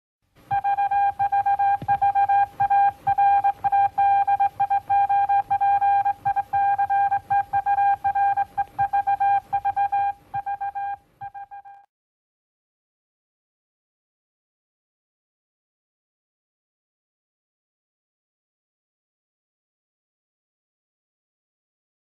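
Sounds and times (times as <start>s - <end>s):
morse code beeps: 0.5s - 11.9s.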